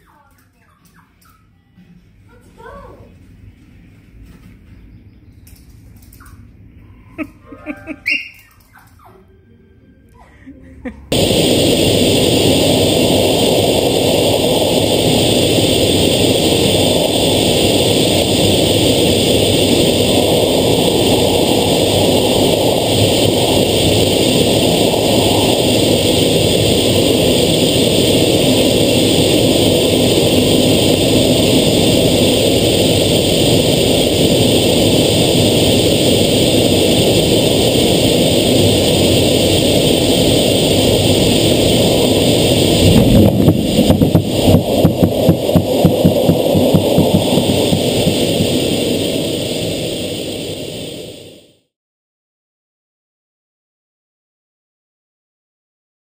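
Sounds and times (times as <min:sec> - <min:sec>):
jet engine noise in cockpit: 0:11.1 - 0:51.7.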